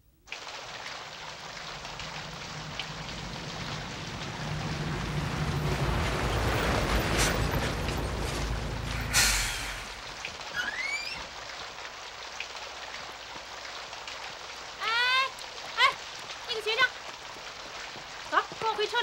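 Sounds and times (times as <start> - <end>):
heavy rain on pavement: 0.3 - 19.0
bus engine rumble: 1.6 - 10.3
short loud hiss: 9.0 - 10.0.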